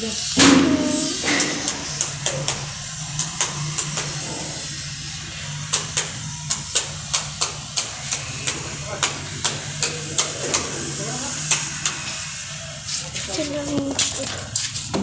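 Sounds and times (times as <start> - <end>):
steady low hum: 0.0 - 15.0
sharp hammer-like knocks: 0.4 - 2.6.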